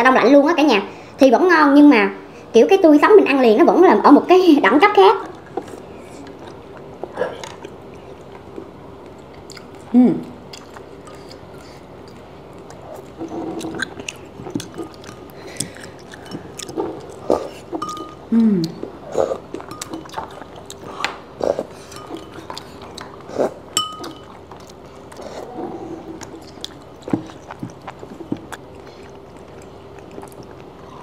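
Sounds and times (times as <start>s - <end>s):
chewing: 5.2s - 31.0s
utensils clinking on ceramic bowls: 17.8s - 18.2s, 19.6s - 20.2s, 21.9s - 22.6s, 23.8s - 24.4s.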